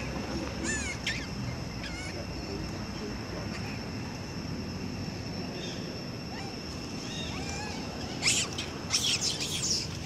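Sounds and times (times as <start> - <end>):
monkeys squeaking faintly: 0.0 - 2.5, 6.3 - 10.0
monkey shrill screams: 0.6 - 2.2, 6.3 - 10.0.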